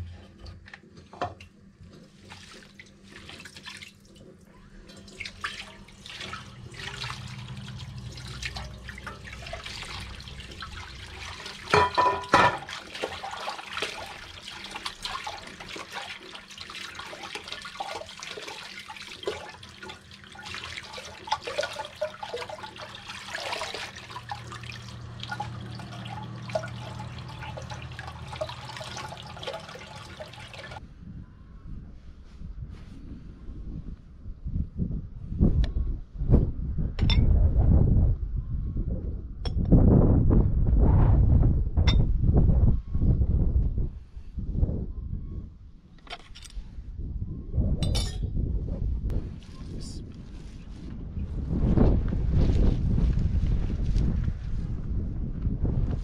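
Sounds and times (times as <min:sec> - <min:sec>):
tap water running into bowl: 0:04.9 - 0:30.8.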